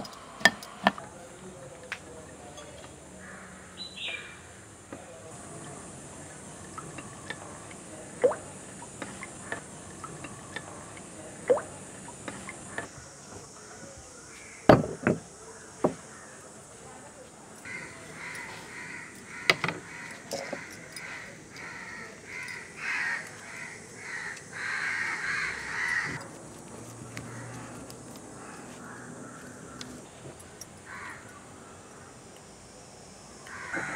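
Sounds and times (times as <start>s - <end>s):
crows cawing: 3.2s - 4.4s, 16.0s - 16.4s, 17.6s - 26.2s, 27.1s - 30.1s, 30.8s - 32.1s, 33.5s - 33.9s.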